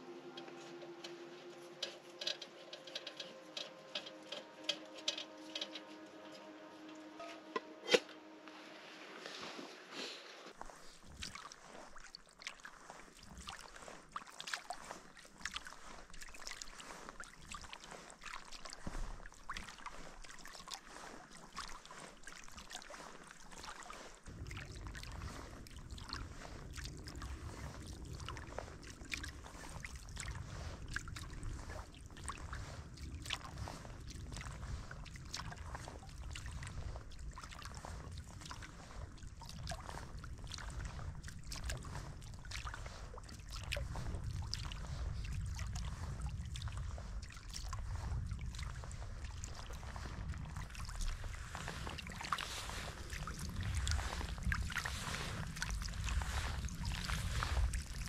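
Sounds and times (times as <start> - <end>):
water dripping and trickling: 0.0 - 7.6, 10.6 - 58.0
low steady rumble: 0.0 - 9.6, 24.2 - 58.0
paddle strokes in water: 0.0 - 58.0.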